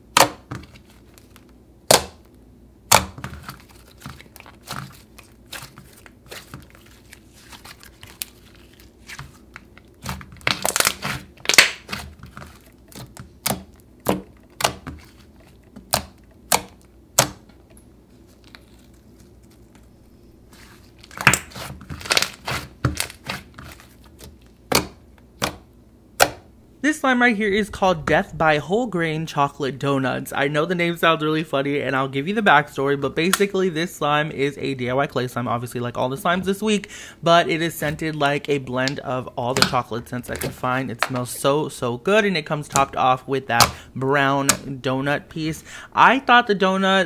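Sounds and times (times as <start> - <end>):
air pockets popping and crackling: 2.9 - 17.6, 21.0 - 25.6.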